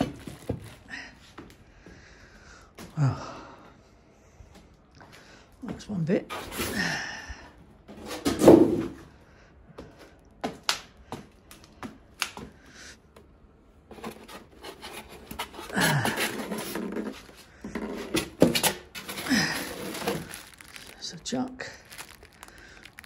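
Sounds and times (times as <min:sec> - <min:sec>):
rubbing and scraping: 0:13.9 - 0:21.0
polystyrene and cardboard handled: 0:18.1 - 0:23.0.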